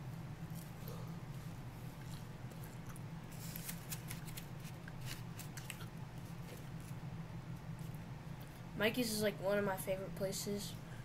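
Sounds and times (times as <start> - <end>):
steady low hum: 0.0 - 11.0
chewing pizza: 1.9 - 6.9.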